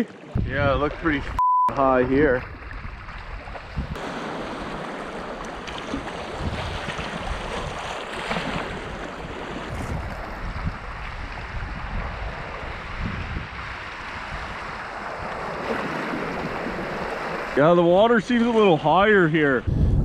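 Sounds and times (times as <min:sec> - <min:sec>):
wind gusting on microphone: 0:00.3 - 0:20.0
river current rushing: 0:04.0 - 0:19.4.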